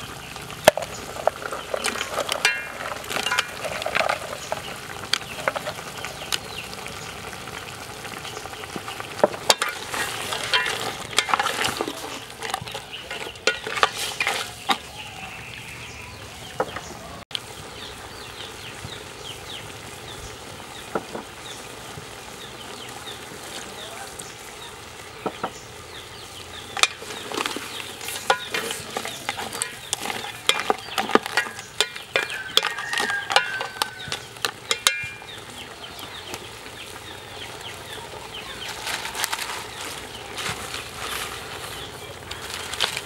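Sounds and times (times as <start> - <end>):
shells clattering in metal pot: 0.6 - 5.9, 9.3 - 14.8, 26.8 - 35.3.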